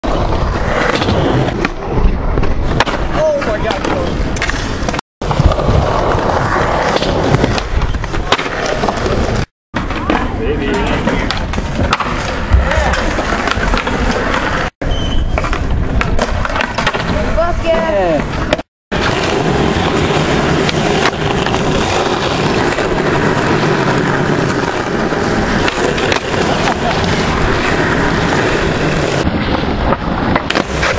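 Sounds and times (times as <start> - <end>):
skateboard wheels rolling on concrete: 0.0 - 30.9
skateboard clacks: 6.2 - 14.6.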